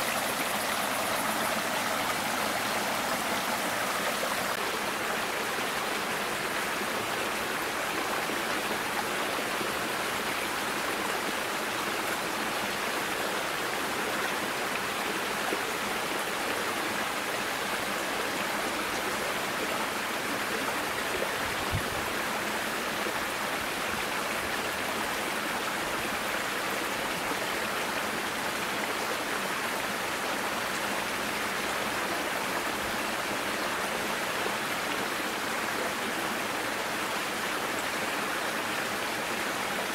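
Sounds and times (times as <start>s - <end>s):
brook running over rocks: 0.0s - 8.2s.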